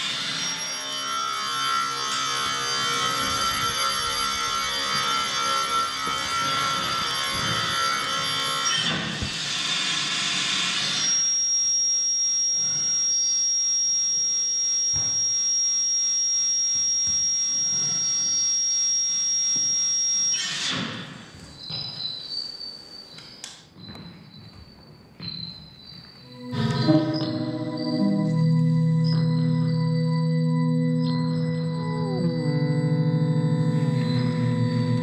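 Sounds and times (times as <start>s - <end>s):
high-pitched audio feedback whistle: 0.0s - 35.0s
faint held feedback tones: 0.1s - 8.9s, 21.6s - 35.0s.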